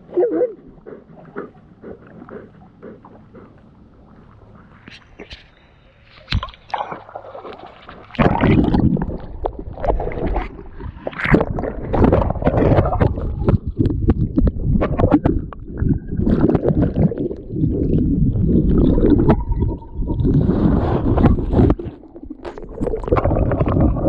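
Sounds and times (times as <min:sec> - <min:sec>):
river water splashing: 0:06.0 - 0:08.7.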